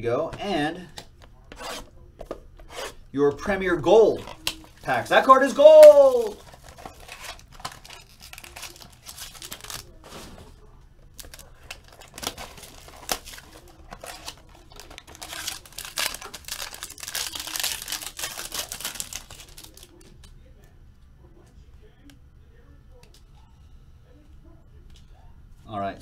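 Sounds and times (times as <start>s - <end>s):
foil wrappers crinkling and tearing: 4.1s - 20.1s.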